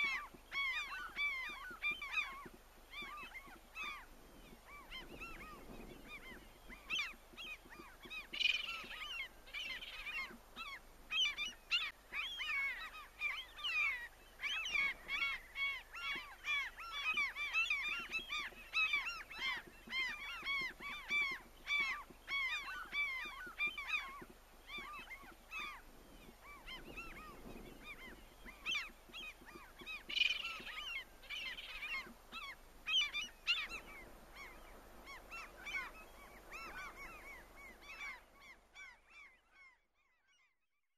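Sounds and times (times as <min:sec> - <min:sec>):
flock of birds calling: 0:00.0 - 0:39.8.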